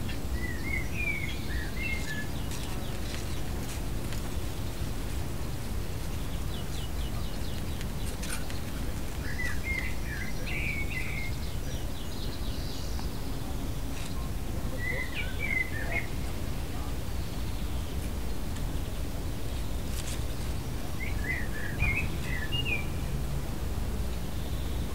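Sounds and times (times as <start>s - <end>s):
bird chirping: 0.0s - 3.5s, 6.1s - 18.1s, 19.5s - 23.0s.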